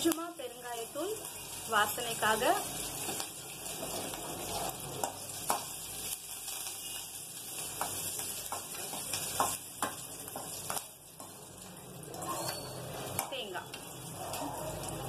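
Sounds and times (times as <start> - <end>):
oil sizzling in a pan: 0.0 - 15.0.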